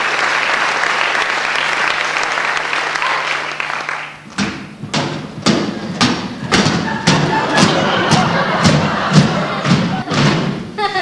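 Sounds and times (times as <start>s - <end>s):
audience applauding: 0.0s - 4.3s, 6.5s - 10.2s
sharp thuds: 4.3s - 10.7s.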